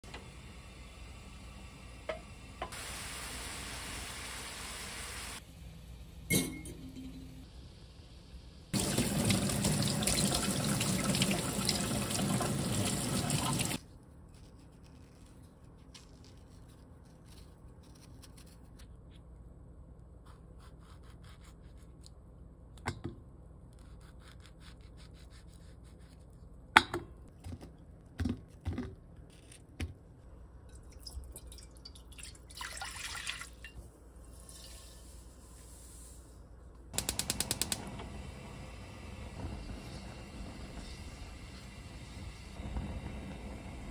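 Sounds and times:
tap water rushing: 0:08.8 - 0:13.8
water pouring into a wok: 0:08.8 - 0:13.8, 0:30.9 - 0:33.8.

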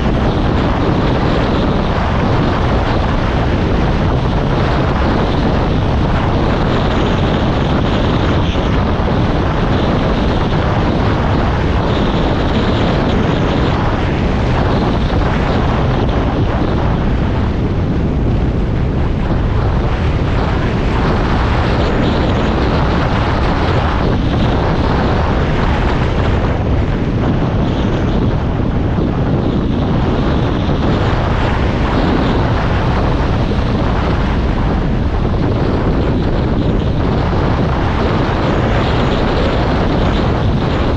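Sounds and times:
moving vehicle rumbling: 0:00.0 - 0:40.9
wind buffeting microphone: 0:00.0 - 0:40.9.

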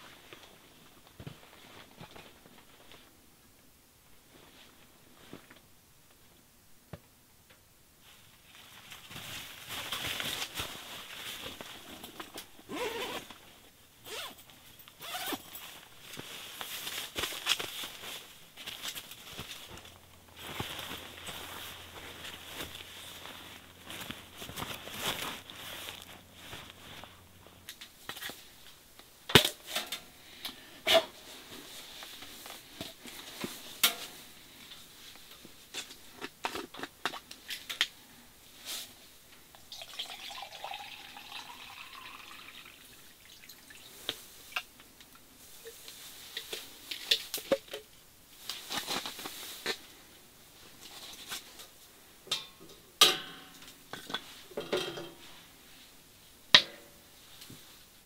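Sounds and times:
water poured into a mug: 0:39.7 - 0:43.9.

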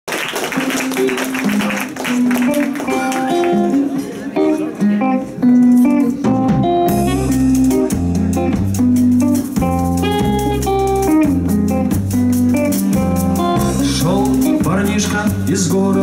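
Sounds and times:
electric guitar: 0:00.1 - 0:16.0
bass guitar: 0:00.6 - 0:16.0
melody of held notes: 0:00.6 - 0:16.0
drum kit: 0:05.2 - 0:16.0.

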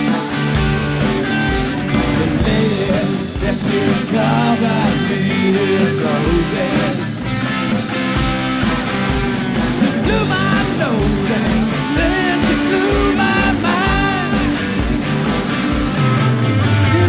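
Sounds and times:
electric bass guitar: 0:00.0 - 0:17.0
strummed acoustic guitar: 0:00.0 - 0:17.0
man singing: 0:02.0 - 0:07.2, 0:09.8 - 0:14.8.

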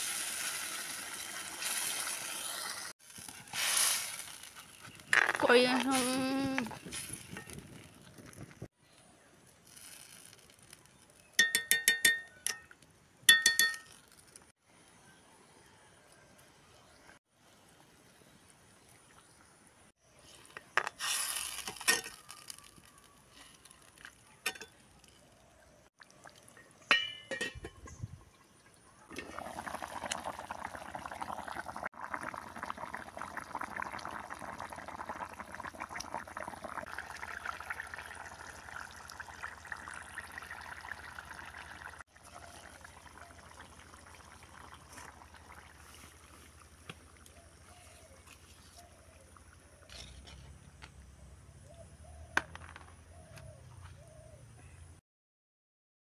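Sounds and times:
curry bubbling: 0:23.6 - 0:49.9.

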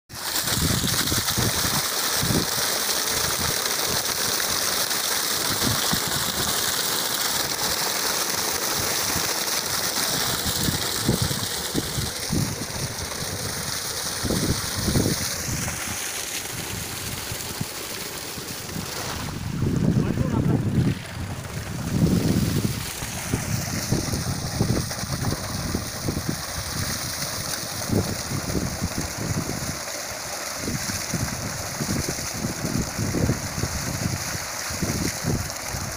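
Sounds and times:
water gushing from a pipe: 0:00.1 - 0:35.9
wind buffeting microphone: 0:18.6 - 0:29.7.

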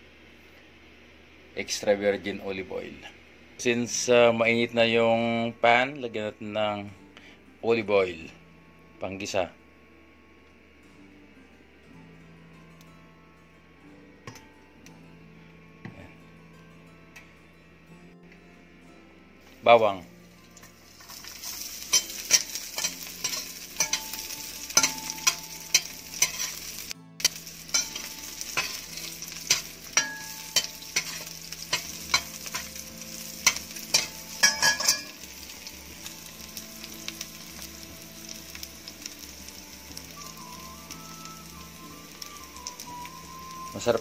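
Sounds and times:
garlic sizzling in oil: 0:20.4 - 0:44.0
metal spoon scraping pan: 0:21.0 - 0:24.2, 0:24.8 - 0:32.7.

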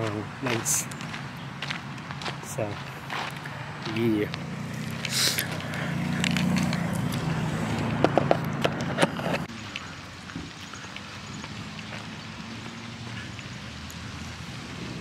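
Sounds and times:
phone clicks and taps: 0:07.8 - 0:09.3.

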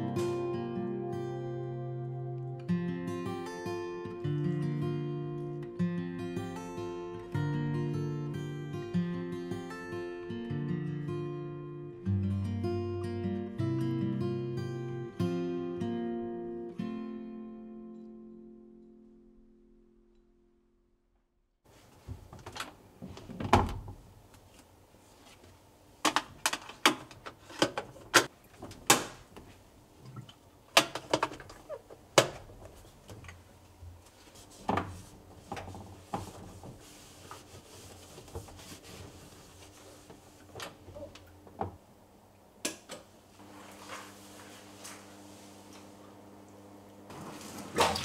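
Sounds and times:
bathroom fittings clicking and knocking: 0:26.1 - 0:29.2, 0:30.2 - 0:33.4.

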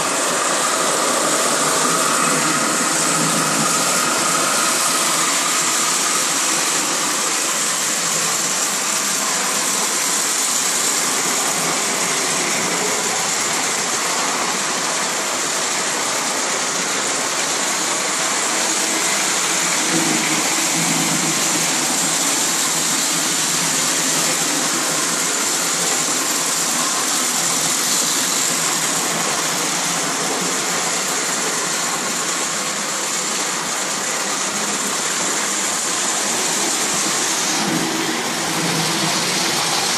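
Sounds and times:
model train rolling on rails: 0:00.0 - 0:39.9.

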